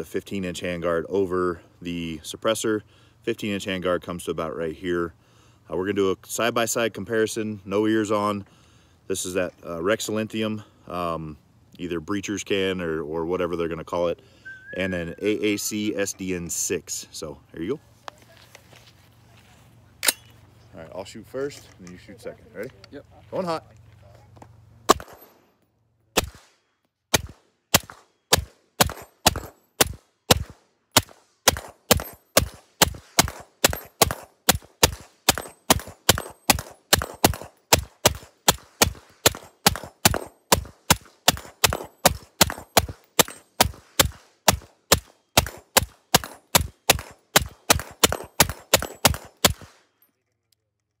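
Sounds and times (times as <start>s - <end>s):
suppressed rifle shots: 27.1s - 49.8s.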